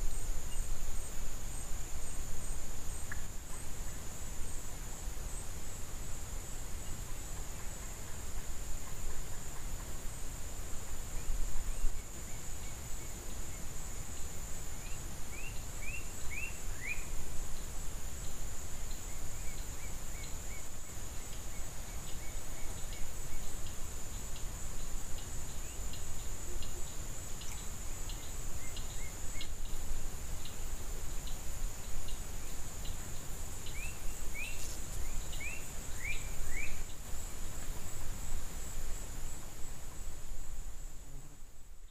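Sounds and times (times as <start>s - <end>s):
bird chirping: 32.1s - 37.0s.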